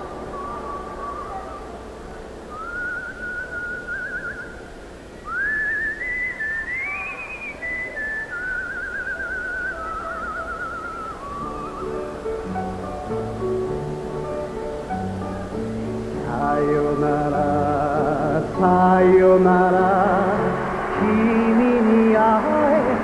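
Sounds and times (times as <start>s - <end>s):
faint orchestral accompaniment: 0.0s - 2.5s, 11.1s - 23.0s
man whistling a melody: 2.5s - 4.6s, 5.2s - 13.0s, 16.3s - 23.0s.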